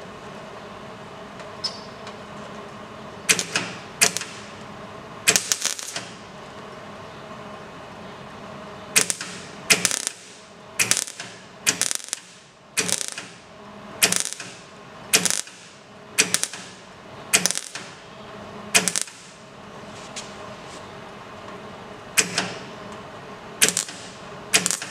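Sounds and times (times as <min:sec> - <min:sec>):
faint welder hum: 0:00.0 - 0:24.9
welding arc crackling: 0:03.3 - 0:06.2, 0:09.0 - 0:18.0, 0:18.7 - 0:19.4, 0:23.6 - 0:24.9.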